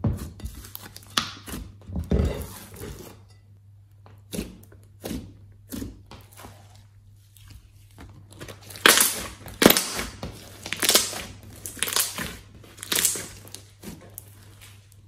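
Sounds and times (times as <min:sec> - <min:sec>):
slime squishing by hand: 0:04.2 - 0:15.0.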